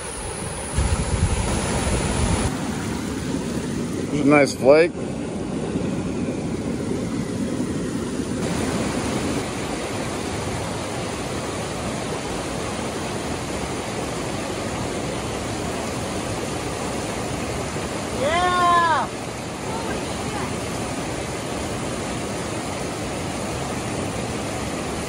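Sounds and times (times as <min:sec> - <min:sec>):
river rushing over rapids: 0:07.4 - 0:25.0.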